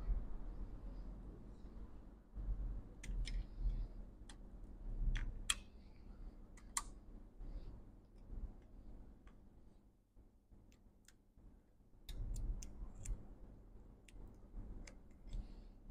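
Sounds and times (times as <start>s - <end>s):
clicks of tweezers and connectors: 12.0s - 13.2s.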